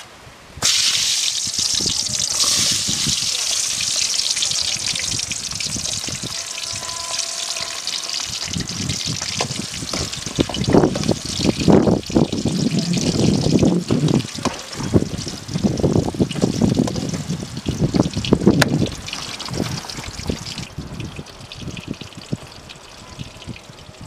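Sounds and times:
onions sizzling in hot oil: 0:00.6 - 0:24.0
metal ladle scraping a pan: 0:05.8 - 0:10.3.

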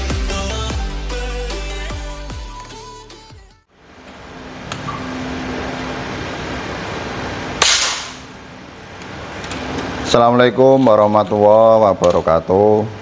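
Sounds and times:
air rifle shot: 0:07.6 - 0:08.3.

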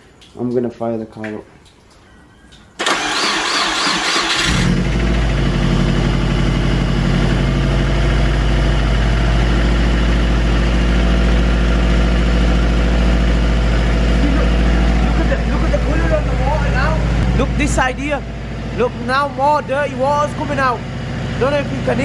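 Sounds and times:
engine starter cranking: 0:02.8 - 0:05.1
car engine idling: 0:02.8 - 0:22.0.

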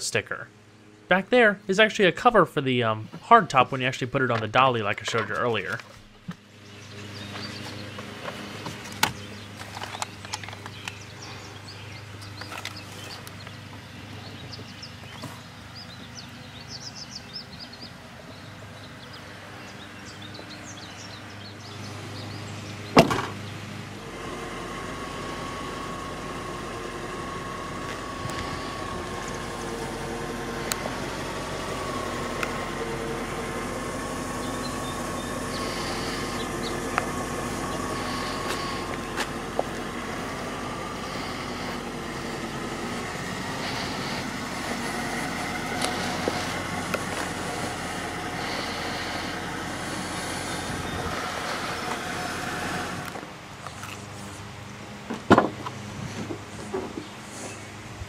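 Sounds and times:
car trunk lid thump: 0:23.0 - 0:23.4.

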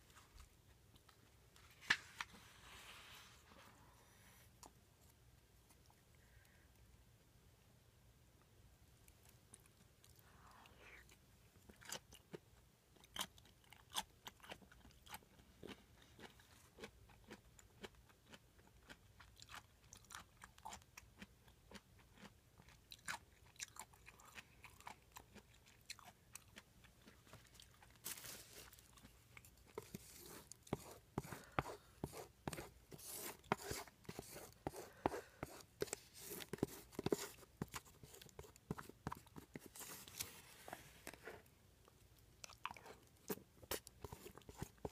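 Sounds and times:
close chewing with mouth clicks: 0:10.9 - 0:32.8, 0:41.8 - 0:44.9.

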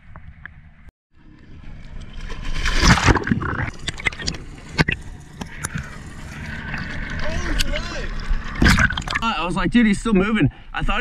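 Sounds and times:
muffled underwater wash: 0:00.2 - 0:09.3
water splashing and bubbling: 0:01.2 - 0:09.3
sharp underwater clicks: 0:02.7 - 0:05.9.

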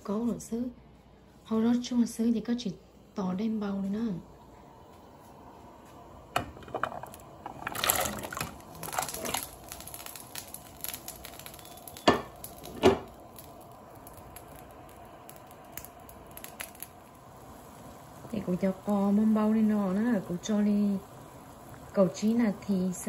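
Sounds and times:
vegetable cubes splashing into water: 0:07.5 - 0:11.5.

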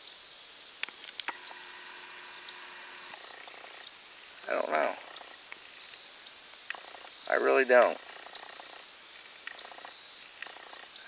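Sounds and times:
insects chirping: 0:00.0 - 0:11.0
steady high insect drone: 0:00.0 - 0:11.0.

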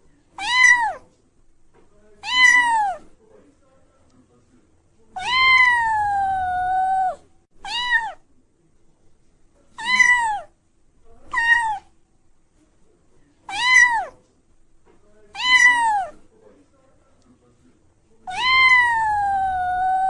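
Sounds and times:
cat meowing: 0:00.4 - 0:01.0, 0:02.2 - 0:03.0, 0:05.1 - 0:08.2, 0:09.8 - 0:10.5, 0:11.3 - 0:11.9, 0:13.5 - 0:14.2, 0:15.3 - 0:16.2, 0:18.2 - 0:20.0.

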